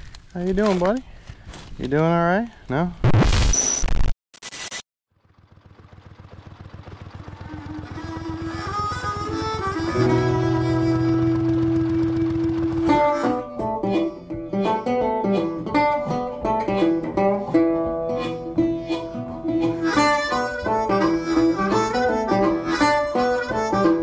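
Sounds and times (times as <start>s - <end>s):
harmonica holding notes: 7.3s - 24.0s
plucked strings: 8.4s - 24.0s.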